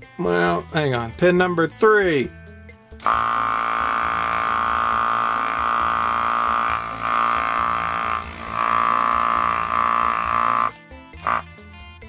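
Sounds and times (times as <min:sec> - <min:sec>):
vacuum pump buzzing: 0:03.0 - 0:11.5.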